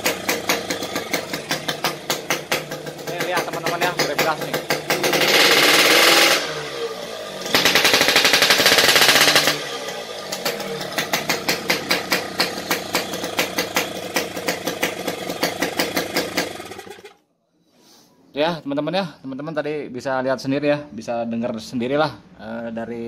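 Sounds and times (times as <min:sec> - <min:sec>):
motorcycle engine revving and idling: 0:00.0 - 0:17.2.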